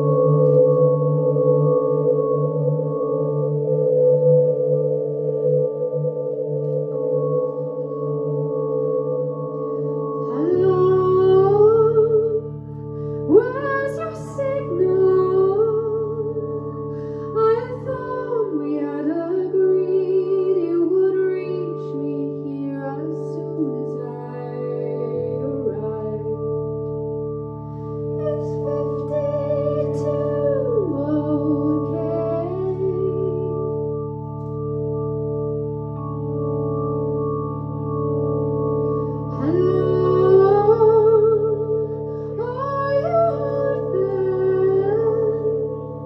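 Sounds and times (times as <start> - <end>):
held keyboard chords: 0.0 - 46.0
woman singing with vibrato: 10.3 - 12.5, 13.2 - 16.5, 17.3 - 26.4, 28.2 - 33.8, 39.3 - 46.0.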